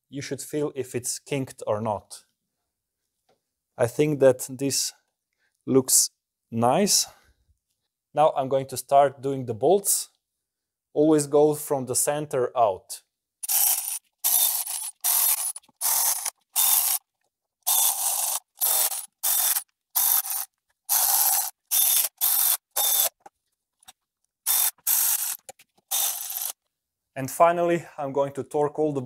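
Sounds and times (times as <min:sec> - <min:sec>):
hand ratchet clicking: 0:13.4 - 0:23.3, 0:24.4 - 0:26.6.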